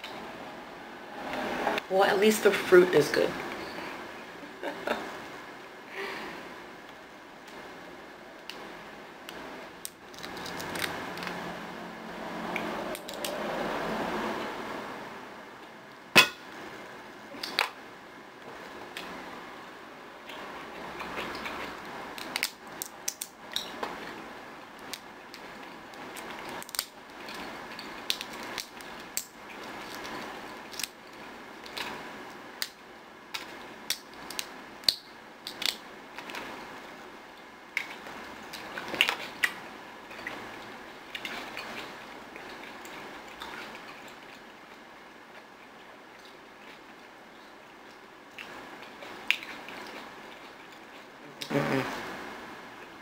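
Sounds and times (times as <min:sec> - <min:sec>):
wet chewing: 0:09.3 - 0:11.5, 0:20.2 - 0:24.2, 0:37.8 - 0:51.2
fruit shell cracking: 0:09.8 - 0:11.4.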